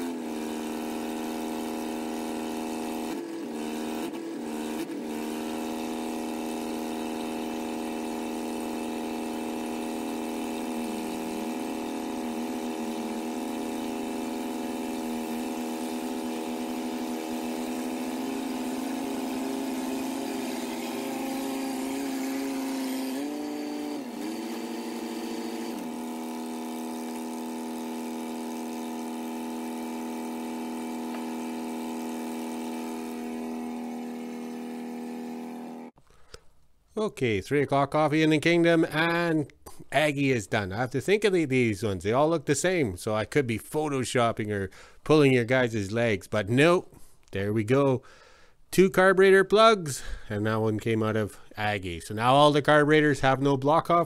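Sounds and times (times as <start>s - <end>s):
diesel engine running: 0.0s - 36.0s.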